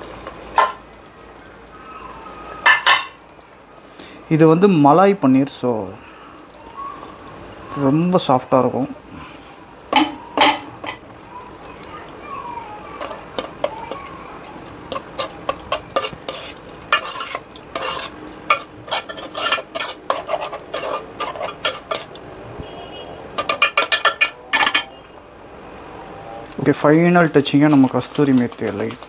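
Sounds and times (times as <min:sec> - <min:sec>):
low sizzle: 0:00.0 - 0:29.0
utensil scraping a pan: 0:13.0 - 0:22.2, 0:23.3 - 0:25.0.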